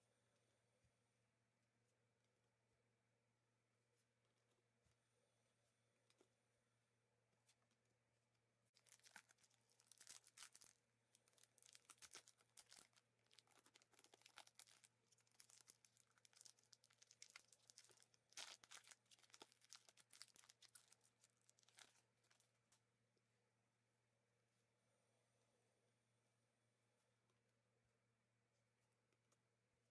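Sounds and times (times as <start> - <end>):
wrapper crackling torn open: 8.8 - 22.0.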